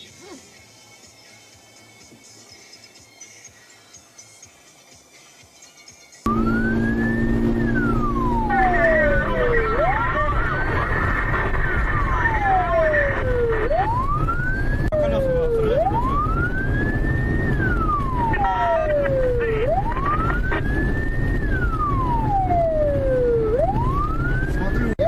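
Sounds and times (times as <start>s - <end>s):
engine and road rumble: 6.0s - 25.0s
police siren wailing: 6.3s - 25.0s.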